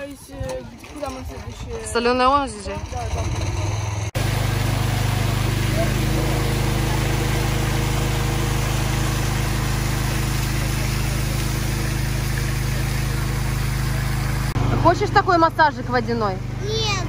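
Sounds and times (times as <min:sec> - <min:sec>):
water gushing and splashing: 0:04.2 - 0:14.6.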